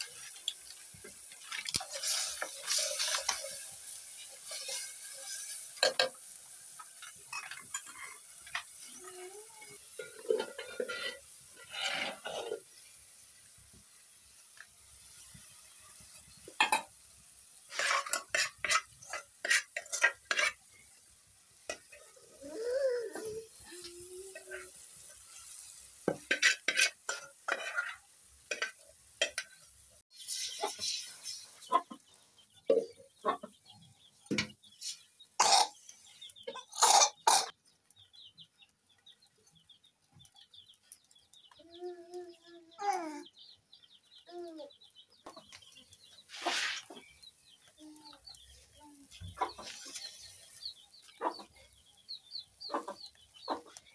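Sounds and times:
metal bowl scraping: 0:10.0 - 0:12.7, 0:17.7 - 0:20.6, 0:26.1 - 0:29.4
chicks peeping: 0:36.0 - 0:36.6, 0:37.7 - 0:53.9.

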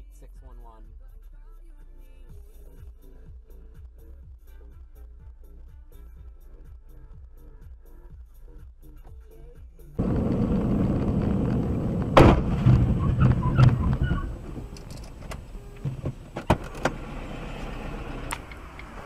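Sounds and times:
car road and engine noise: 0:10.0 - 0:19.0
sharp bang: 0:10.1 - 0:14.6
sharp clicks: 0:10.1 - 0:15.6.

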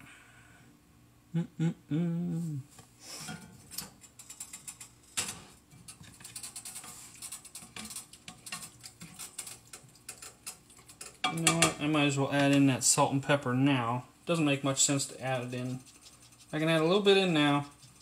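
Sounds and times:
utensil clicking and scraping skillet: 0:03.3 - 0:11.7, 0:15.3 - 0:18.0.

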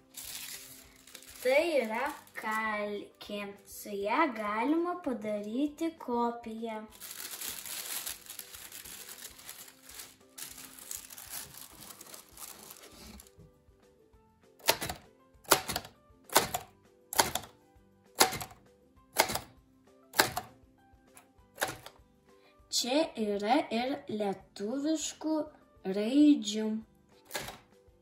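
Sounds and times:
paper rustling: 0:00.0 - 0:02.7, 0:06.9 - 0:13.4
typewriter keystrokes: 0:14.6 - 0:17.5, 0:18.2 - 0:18.6, 0:19.2 - 0:19.5, 0:20.2 - 0:20.5, 0:21.6 - 0:21.9, 0:27.3 - 0:27.6.

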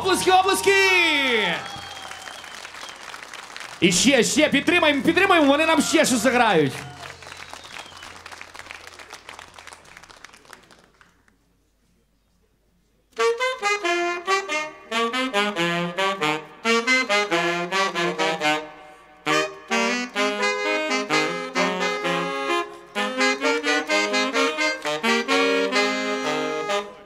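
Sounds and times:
applause: 0:01.4 - 0:11.4
saxophone trio playing: 0:13.1 - 0:27.0.

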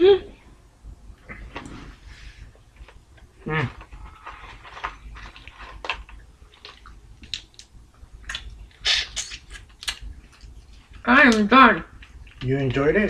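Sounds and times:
chewing with wet mouth smacks: 0:06.5 - 0:11.0.

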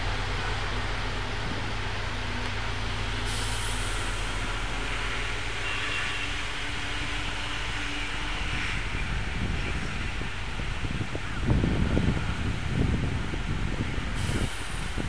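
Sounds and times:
diesel locomotive engine drone: 0:00.0 - 0:15.0
air hiss: 0:03.2 - 0:06.6, 0:14.2 - 0:15.0.

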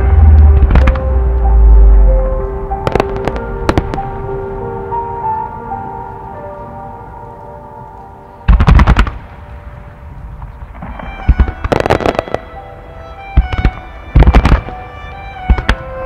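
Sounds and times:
steady music: 0:00.0 - 0:16.0
firework shells bursting: 0:10.8 - 0:12.6, 0:13.4 - 0:14.8.

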